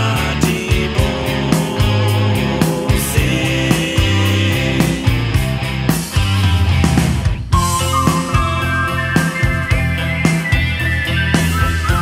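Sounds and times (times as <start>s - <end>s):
bass: 0.0s - 12.0s
drum kit: 0.0s - 12.0s
electric guitars: 0.0s - 12.0s.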